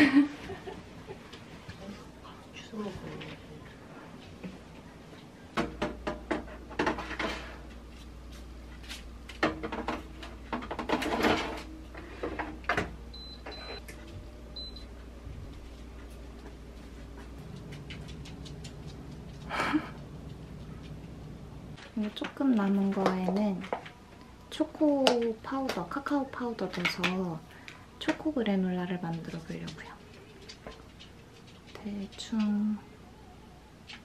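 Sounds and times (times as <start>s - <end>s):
low steady hum: 0.0s - 34.0s
metal baking trays clattering: 9.4s - 12.6s.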